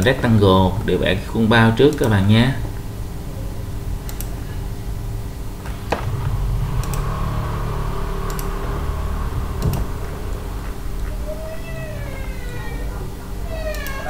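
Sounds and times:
low room hum: 0:00.0 - 0:14.0
computer mouse clicking: 0:04.0 - 0:04.4, 0:06.8 - 0:07.1, 0:08.2 - 0:08.6, 0:09.6 - 0:09.9, 0:13.6 - 0:14.0.

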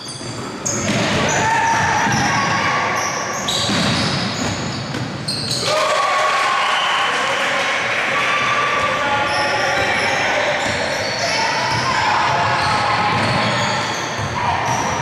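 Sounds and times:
sneakers squeaking on court: 0:00.0 - 0:05.7, 0:08.8 - 0:15.0
basketball bouncing: 0:00.6 - 0:02.6, 0:03.5 - 0:05.2, 0:11.7 - 0:15.0
people shouting: 0:05.6 - 0:09.0.

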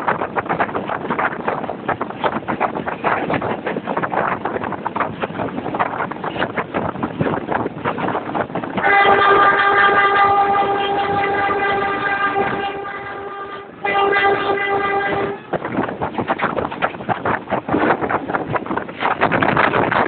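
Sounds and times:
train wheel clatter: 0:00.0 - 0:20.0
wind rush: 0:00.0 - 0:20.0
diesel locomotive horn: 0:08.8 - 0:15.5.

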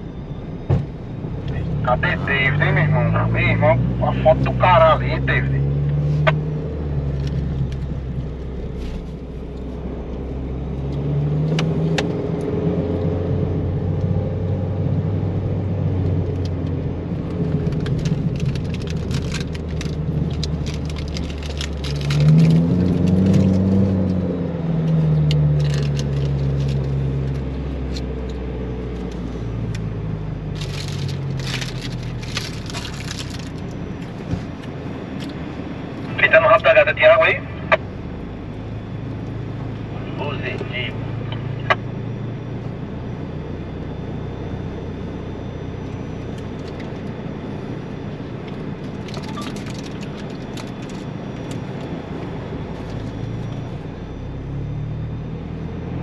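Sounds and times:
off-road vehicle engine revving: 0:01.4 - 0:08.6, 0:10.2 - 0:17.7, 0:19.6 - 0:33.5.

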